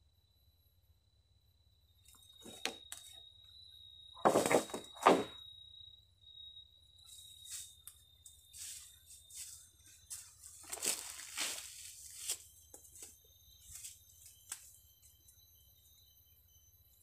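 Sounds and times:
footsteps through dry leaves: 8.6 - 12.5.

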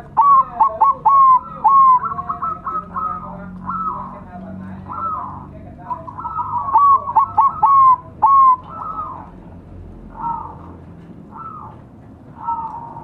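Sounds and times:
doves cooing: 0.0 - 13.0.

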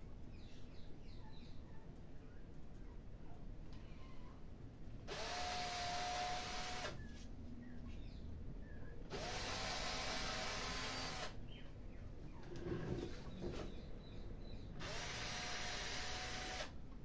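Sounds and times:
cordless drill whine: 5.1 - 7.0, 9.1 - 11.4, 14.8 - 16.8.

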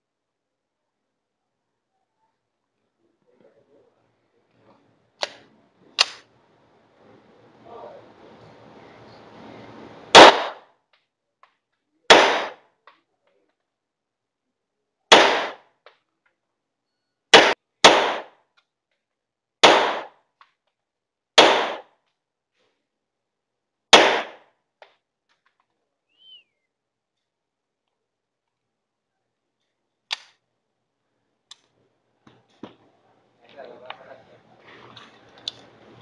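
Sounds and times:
pistol shots with echo: 10.1 - 10.7, 12.1 - 12.6, 15.1 - 15.6, 17.3 - 18.4, 19.6 - 20.2, 21.4 - 21.9, 23.9 - 24.4.

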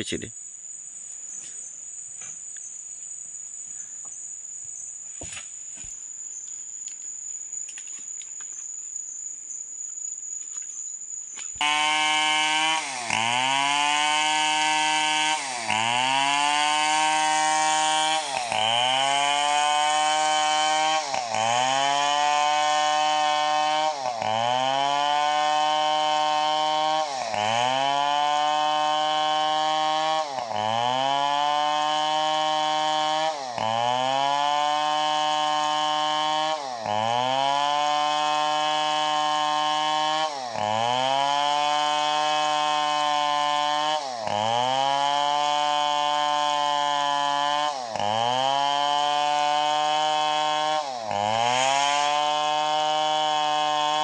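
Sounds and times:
high insect trill: 0.0 - 11.6
chainsaw cutting log: 0.8 - 8.7, 11.3 - 54.0.

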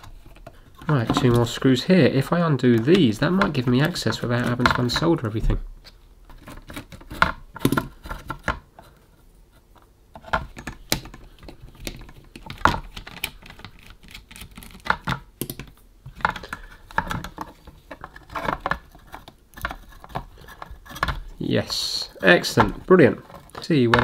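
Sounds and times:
handling plastic housing: 0.0 - 24.0.

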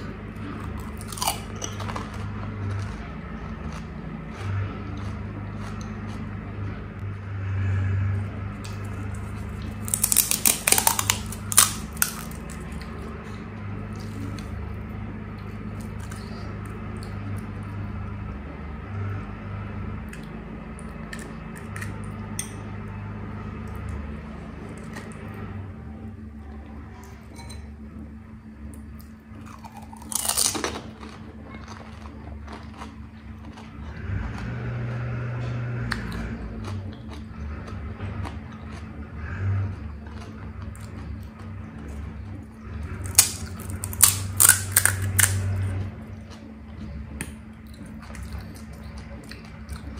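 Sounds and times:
crisp food crunching: 0.0 - 6.6, 8.6 - 13.1, 15.7 - 17.5, 20.2 - 22.5, 29.4 - 34.9, 39.7 - 46.5, 47.2 - 49.9
low steady hum: 0.0 - 49.9.

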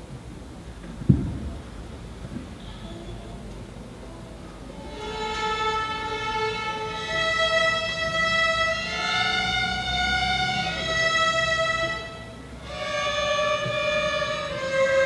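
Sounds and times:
string orchestra playing slow notes: 4.6 - 15.0.

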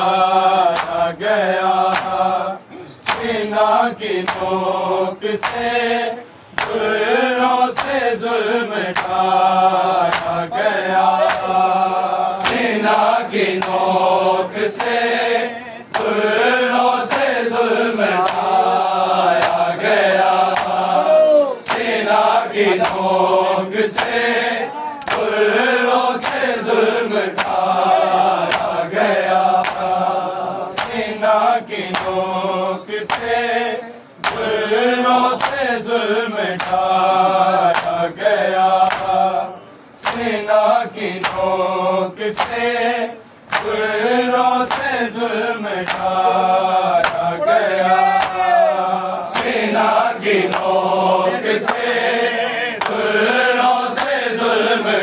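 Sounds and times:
group chanting: 0.0 - 55.0
chest-beating slaps: 0.7 - 1.1, 1.9 - 2.2, 3.0 - 3.4, 4.2 - 4.6, 5.4 - 5.7, 6.5 - 6.8, 8.9 - 9.2, 10.0 - 10.4, 11.1 - 11.6, 13.6 - 13.9, 15.9 - 16.2, 21.6 - 22.0, 25.0 - 25.4, 27.4 - 27.6, 28.4 - 28.8, 30.8 - 31.1, 33.1 - 33.4, 34.2 - 34.5, 35.4 - 35.6, 36.6 - 36.8, 37.7 - 38.0, 38.9 - 39.2, 40.0 - 40.4, 41.2 - 41.5, 42.3 - 42.6, 43.5 - 43.8, 47.0 - 47.3.

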